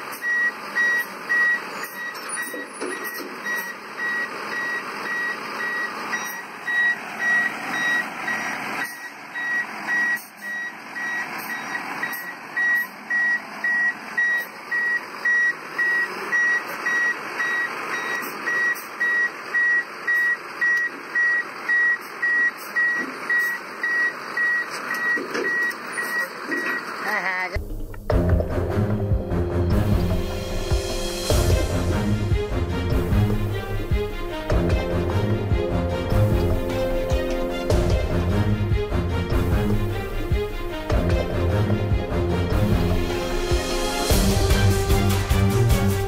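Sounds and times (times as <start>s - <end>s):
truck reversing alarm beeping: 0.0s - 27.2s
heavy truck engine running: 0.0s - 46.0s.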